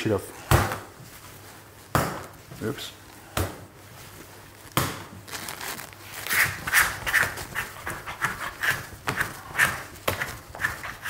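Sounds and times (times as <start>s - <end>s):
dough slapping on wooden table: 4.8s - 5.2s, 6.3s - 11.0s.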